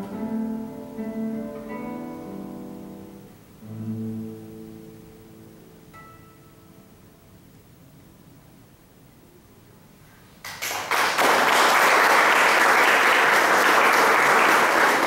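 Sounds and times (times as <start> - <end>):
audience applause: 10.4 - 15.0.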